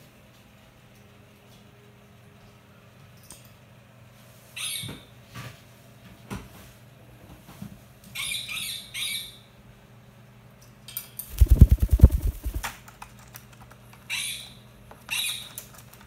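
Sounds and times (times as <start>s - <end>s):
bird wingbeats: 11.3s - 12.7s.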